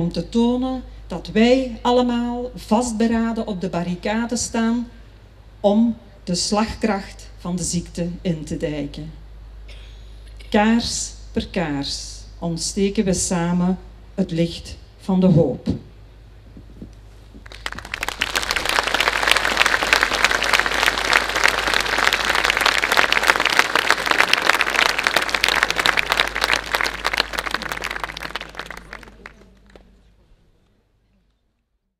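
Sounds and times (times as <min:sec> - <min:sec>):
audience applauding: 0:17.4 - 0:30.0.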